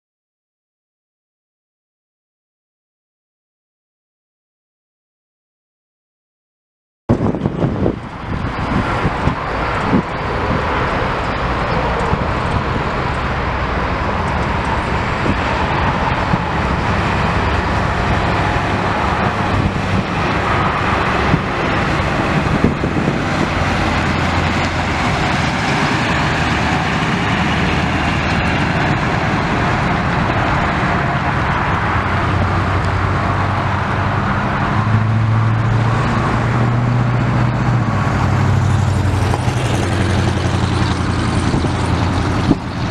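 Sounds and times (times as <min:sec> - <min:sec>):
diesel engine running: 0:07.1 - 0:42.9.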